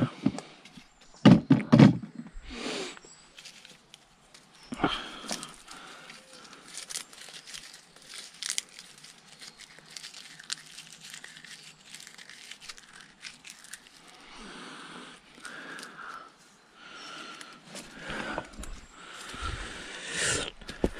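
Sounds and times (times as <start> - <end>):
cord rustling: 3.0 - 16.5, 17.1 - 20.9
dry sticks cracking: 3.3 - 16.4, 17.0 - 19.5.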